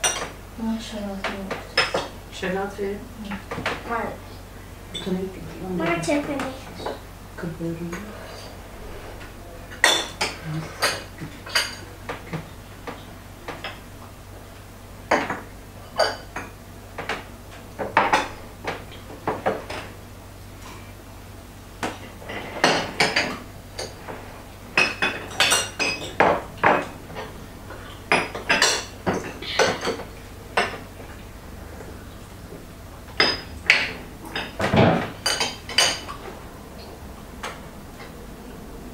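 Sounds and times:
cutlery clinking on plates: 24.8 - 30.8.

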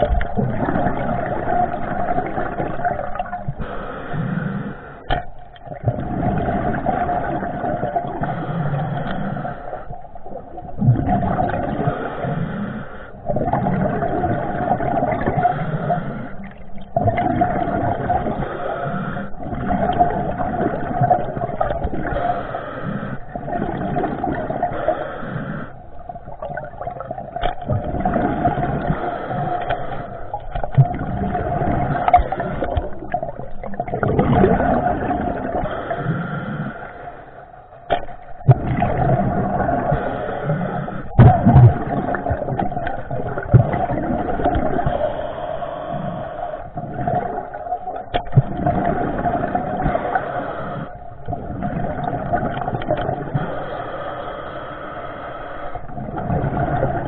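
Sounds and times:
rushing water: 0.0 - 3.7, 13.3 - 18.8, 25.9 - 37.0, 37.8 - 53.6
underwater drone: 0.0 - 57.0.

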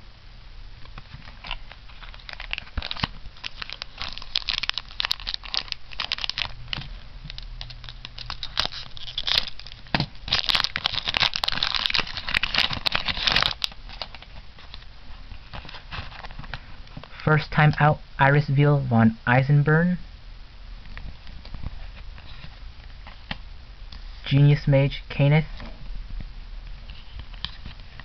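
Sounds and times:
foil wrapper crinkling: 0.8 - 16.6.

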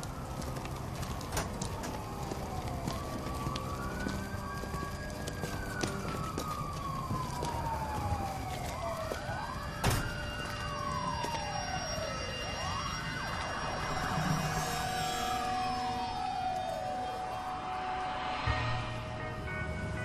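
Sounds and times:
sirens wailing: 0.0 - 20.0.

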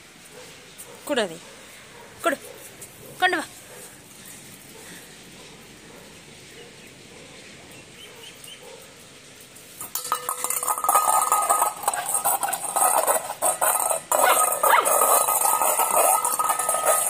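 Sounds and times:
metal bowl clattering on concrete: 9.7 - 17.0.

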